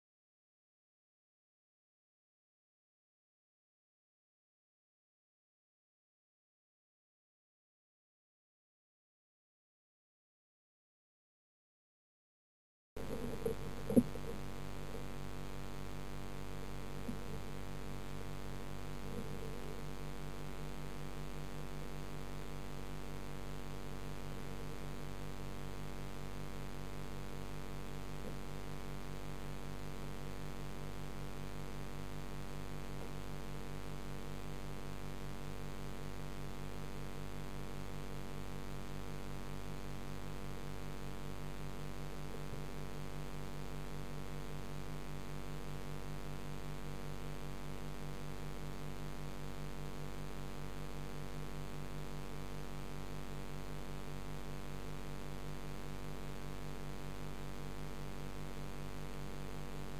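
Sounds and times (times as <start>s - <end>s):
pond filter pump hum underwater: 13.0s - 59.9s.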